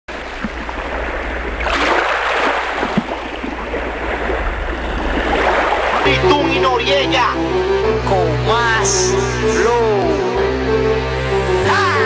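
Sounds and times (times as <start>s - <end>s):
rushing surf-like noise: 0.1s - 6.2s.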